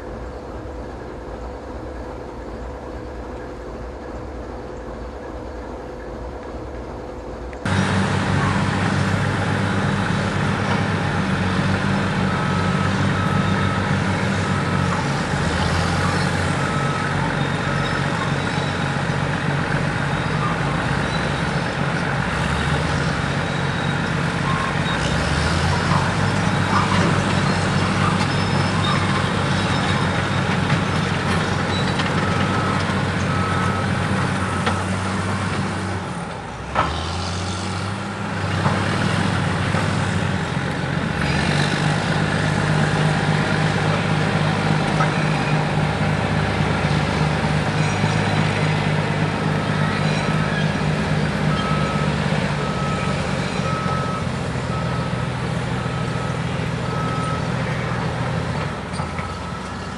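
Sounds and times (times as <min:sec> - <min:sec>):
heavy diesel machinery running: 0:00.0 - 0:59.9
reversing alarm beeping: 0:07.6 - 0:35.8, 0:41.3 - 0:59.9.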